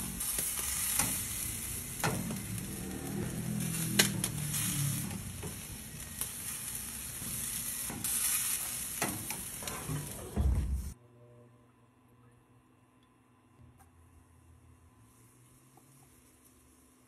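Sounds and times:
meat sizzling on grill: 0:00.0 - 0:10.2.

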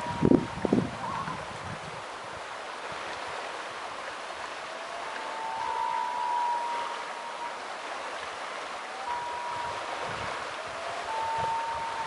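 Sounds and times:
loon wail call: 0:00.0 - 0:01.4, 0:04.6 - 0:12.0
waves on a lake: 0:00.0 - 0:12.0
wind: 0:00.0 - 0:12.0.

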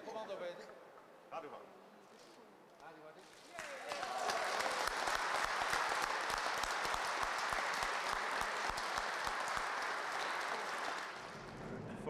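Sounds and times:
audience applauding: 0:03.6 - 0:11.8.

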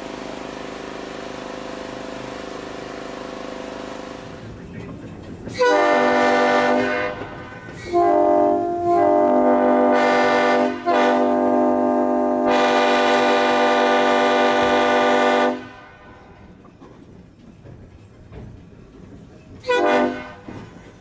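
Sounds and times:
train air horn blasts: 0:05.5 - 0:16.0, 0:19.6 - 0:20.5.

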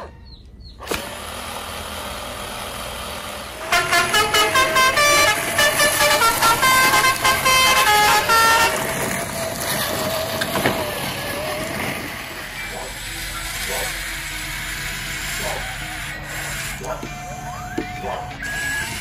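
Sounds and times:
truck engine running: 0:00.0 - 0:19.0
horn honking a tune: 0:03.6 - 0:14.2.

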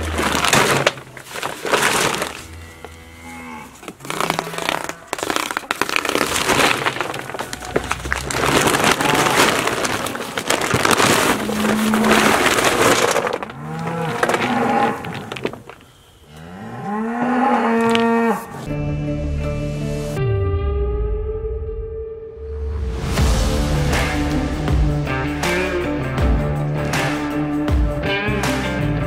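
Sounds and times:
feed cubes pouring into hopper: 0:00.0 - 0:02.5, 0:04.1 - 0:15.8
cattle mooing: 0:02.3 - 0:05.2, 0:07.4 - 0:09.7, 0:11.4 - 0:12.7, 0:13.5 - 0:15.5, 0:16.3 - 0:18.7.

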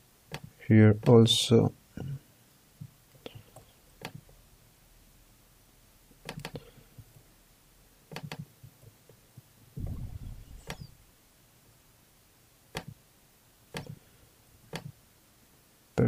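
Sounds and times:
computer mouse clicks: 0:06.2 - 0:07.2, 0:08.1 - 0:08.9, 0:09.8 - 0:11.0, 0:13.8 - 0:14.0, 0:14.7 - 0:14.9
dull knock with low thump: 0:09.8 - 0:11.0.

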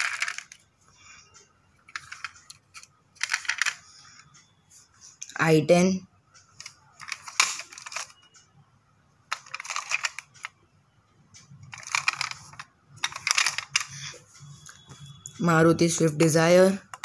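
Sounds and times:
plastic toy car clicking and rattling: 0:00.0 - 0:00.7, 0:01.8 - 0:03.9, 0:06.6 - 0:08.3, 0:09.3 - 0:10.6, 0:11.6 - 0:14.1.

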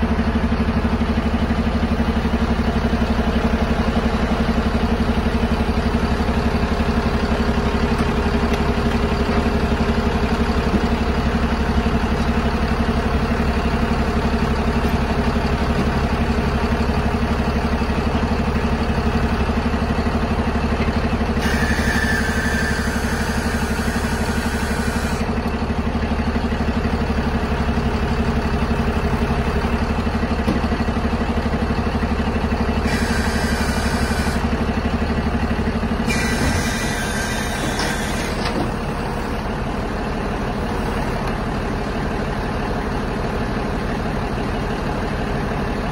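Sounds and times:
diesel engine running: 0:00.0 - 0:45.9
high hydraulic whine: 0:21.3 - 0:25.3, 0:32.8 - 0:34.5, 0:36.0 - 0:39.5.

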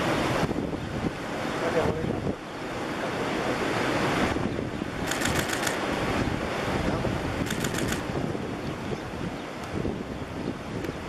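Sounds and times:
waves washing over rocks: 0:00.0 - 0:11.0
wind on microphone: 0:00.0 - 0:11.0
rapid high clicks: 0:05.0 - 0:05.8, 0:07.5 - 0:08.1.

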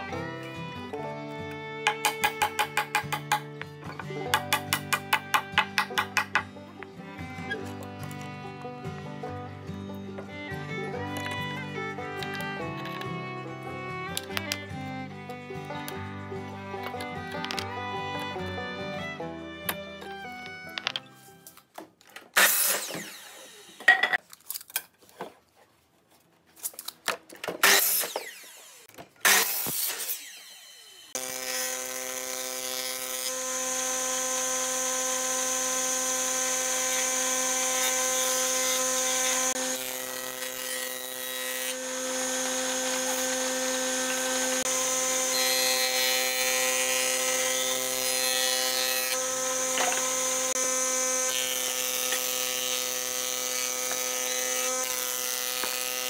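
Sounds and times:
jointer-planer motor hum and whine: 0:41.7 - 0:56.0.

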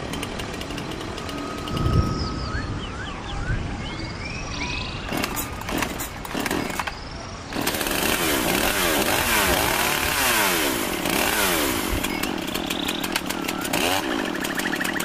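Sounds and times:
chainsaw revving: 0:00.0 - 0:01.8, 0:05.1 - 0:15.0
birdsong: 0:00.7 - 0:09.2, 0:11.0 - 0:15.0
sharp clicks: 0:05.1 - 0:07.8.

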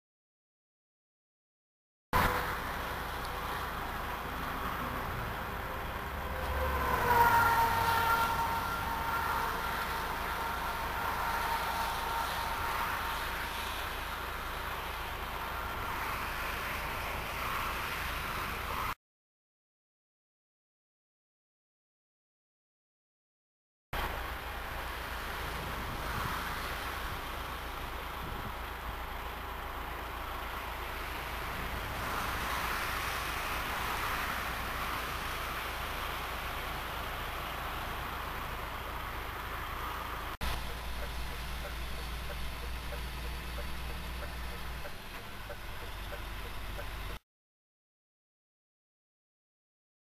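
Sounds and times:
car road noise: 0:02.2 - 0:19.0, 0:24.0 - 0:47.2
motorway traffic tyre noise: 0:02.2 - 0:19.0, 0:24.0 - 0:47.2.

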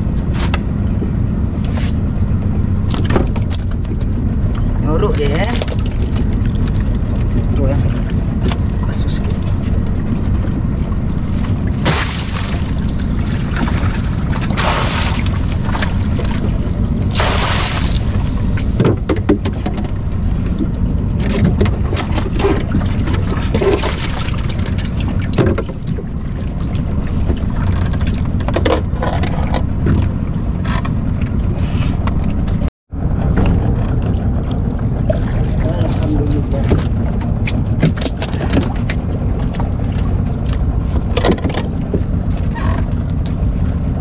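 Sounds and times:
boat engine low rumble: 0:00.0 - 0:44.0
water swells rushing: 0:04.2 - 0:28.4, 0:32.9 - 0:37.4.

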